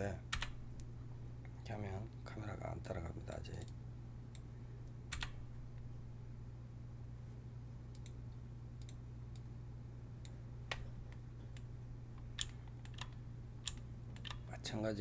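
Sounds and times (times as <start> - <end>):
steady low hum: 0.0 - 15.0
computer mouse clicks: 7.9 - 8.2, 8.8 - 9.5, 10.2 - 14.5.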